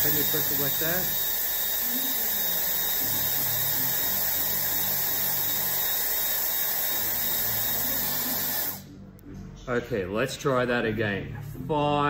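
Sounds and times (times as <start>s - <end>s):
hair dryer running: 0.0s - 8.9s.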